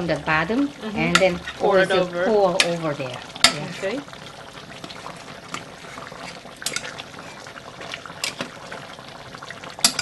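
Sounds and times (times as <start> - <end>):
sauce simmering hiss: 0.0 - 10.0.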